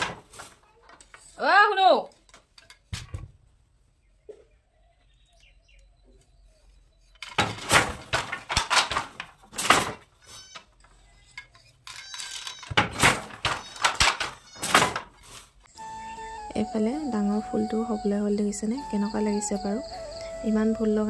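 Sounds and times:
wooden handloom clattering: 7.2 - 15.4.

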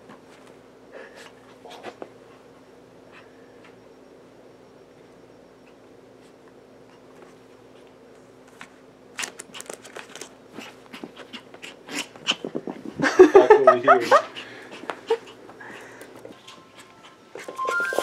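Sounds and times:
puppy scratching at card: 9.2 - 12.9.

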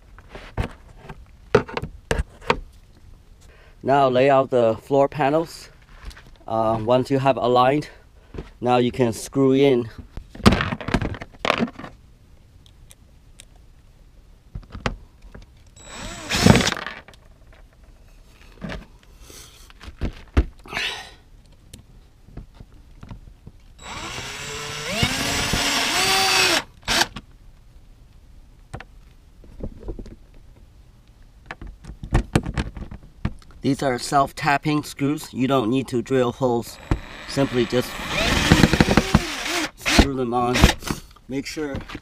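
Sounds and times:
cordless drill driving screw: 15.8 - 16.8, 23.8 - 27.2, 36.7 - 40.8
screws and bit clicking: 15.8 - 16.9, 23.8 - 27.2, 36.8 - 40.8.

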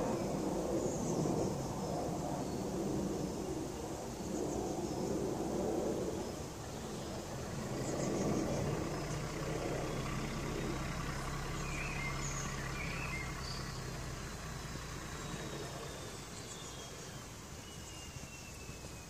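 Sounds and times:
diesel engine low hum: 0.0 - 19.0
bird chirps: 6.7 - 19.0.

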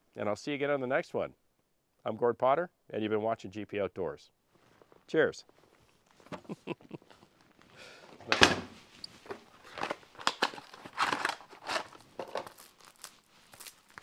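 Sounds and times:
packaging crinkling and tearing: 9.1 - 14.0.

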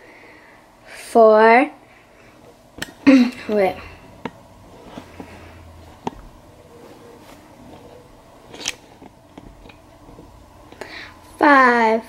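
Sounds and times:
handling noise: 2.7 - 10.9.

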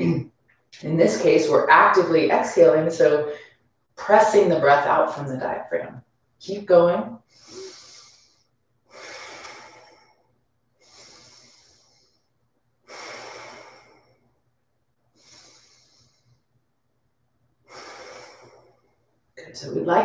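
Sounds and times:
woman breathing through nose: 7.2 - 14.4, 15.1 - 16.5, 17.6 - 19.1.

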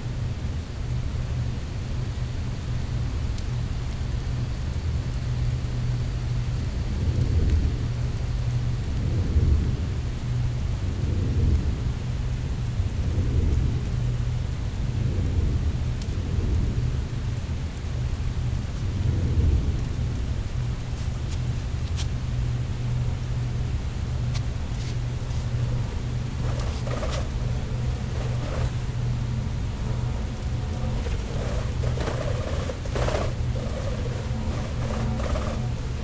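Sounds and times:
steady hiss: 0.0 - 36.0
low rumbling drone: 23.1 - 36.0.

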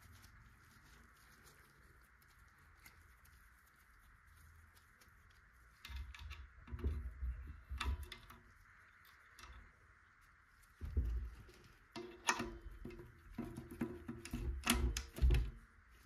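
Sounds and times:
parts clicking into hub: 10.8 - 15.6.

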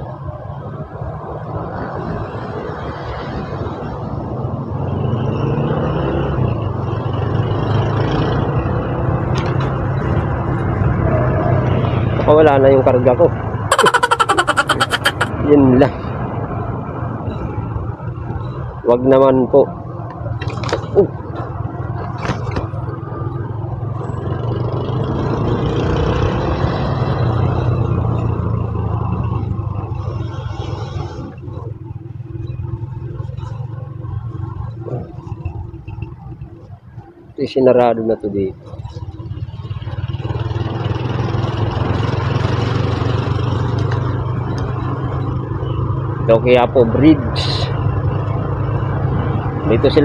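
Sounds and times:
wind and road noise: 0.0 - 50.0
motorcycle engine hum: 26.1 - 37.4, 38.5 - 46.3.

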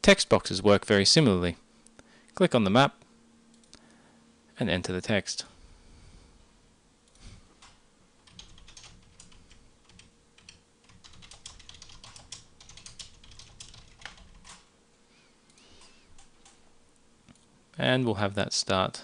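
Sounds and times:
keyboard typing: 7.6 - 14.6.

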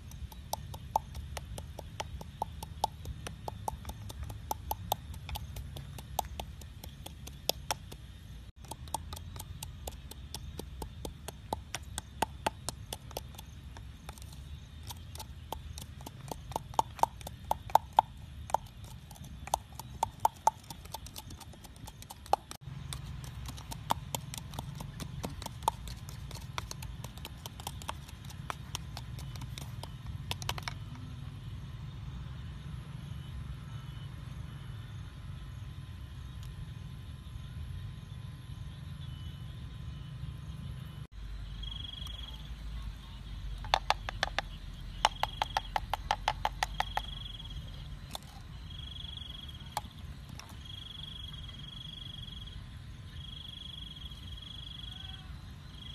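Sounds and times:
utensils clicking and tapping: 0.0 - 30.8
steady low hum: 0.0 - 46.1
objects knocking on cup and board: 43.6 - 47.1.

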